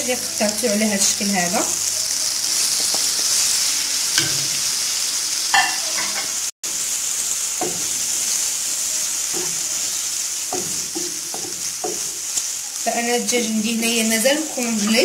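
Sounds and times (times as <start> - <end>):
chicken sizzling in a frying pan: 0.0 - 15.0.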